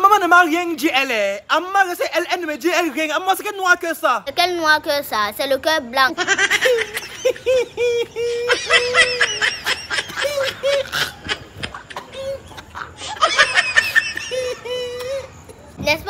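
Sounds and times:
man's high-pitched wordless cries: 12.0 - 12.7.

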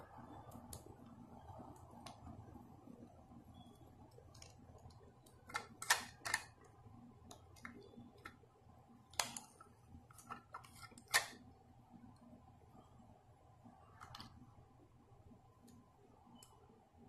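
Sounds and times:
plastic and metal toy clicks: 5.3 - 6.6, 9.1 - 11.4.

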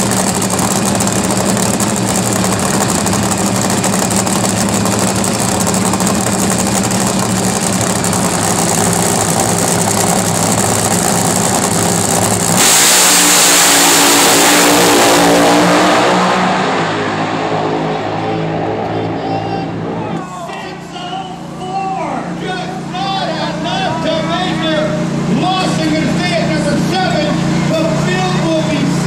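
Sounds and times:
race cars accelerating away: 0.0 - 20.2
race cars idling: 0.0 - 29.0.

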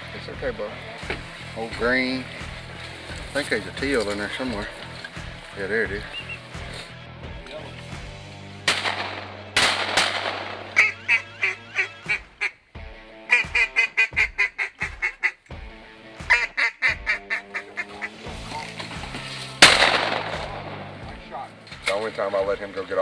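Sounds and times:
shotgun shots: 8.6 - 10.9, 19.6 - 21.0
mallard quacks: 10.7 - 12.6, 13.3 - 15.4, 16.3 - 18.5.

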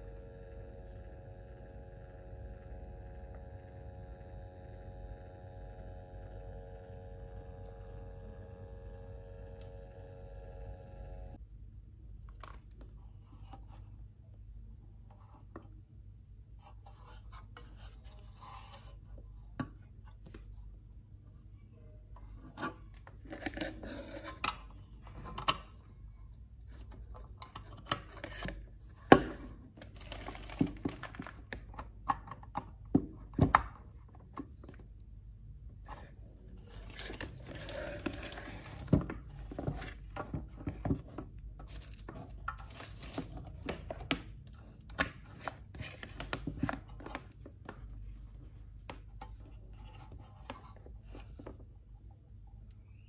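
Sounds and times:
cables rubbing and rustling: 29.4 - 31.9, 35.8 - 51.8.

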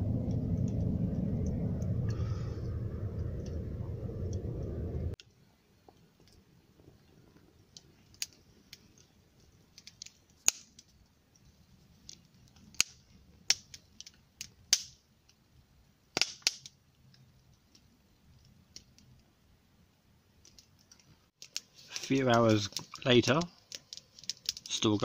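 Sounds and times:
wood fire crackling and popping: 0.0 - 5.3, 5.9 - 15.5, 16.1 - 19.3, 20.3 - 25.0.

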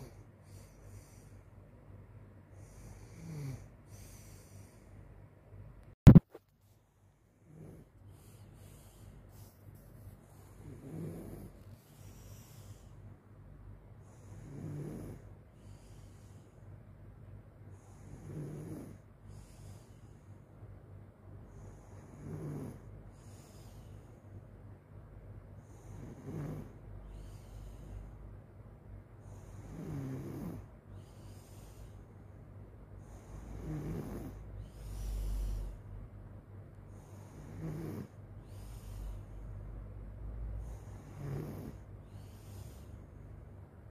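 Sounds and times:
faint steady hum: 0.0 - 43.9
person snoring: 2.6 - 4.8, 10.4 - 12.9, 14.1 - 15.3, 17.8 - 19.8, 21.6 - 23.9, 25.6 - 27.7, 29.4 - 32.0, 33.0 - 35.8, 36.9 - 39.3, 40.6 - 43.0.

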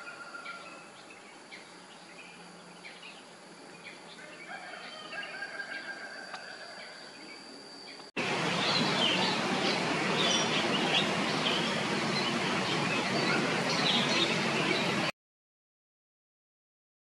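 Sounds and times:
birds chirping: 0.0 - 15.1
thin high whine: 0.0 - 15.1
steady rushing noise: 8.2 - 15.1.

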